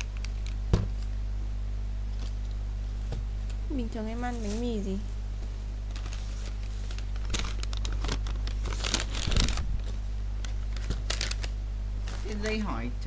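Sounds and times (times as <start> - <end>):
low electrical hum: 0.0 - 13.0
food bags rustling and crinkling: 4.0 - 12.7.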